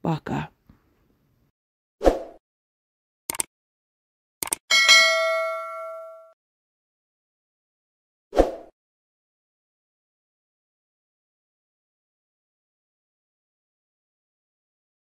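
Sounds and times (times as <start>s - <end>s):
notification bell ding: 4.7s - 6.4s.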